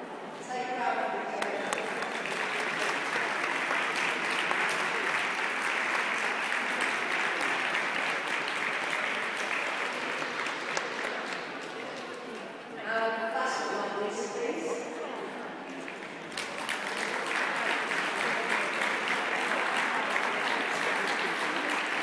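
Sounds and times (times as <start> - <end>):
audience applauding: 1.4 - 12.2, 15.7 - 22.0.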